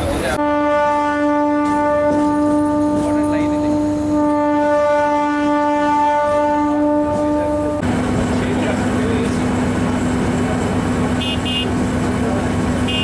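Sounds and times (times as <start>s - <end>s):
train horn blast: 0.4s - 7.8s, 11.1s - 11.8s, 12.8s - 13.0s.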